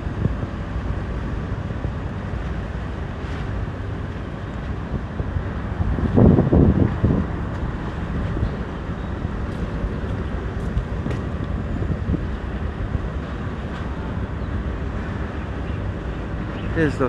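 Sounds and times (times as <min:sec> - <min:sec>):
wind buffeting microphone: 0:00.0 - 0:16.8.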